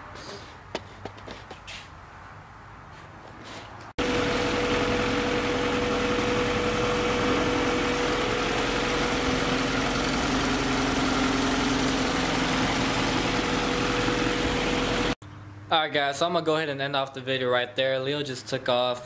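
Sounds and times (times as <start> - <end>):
car engine idling: 4.0 - 15.2.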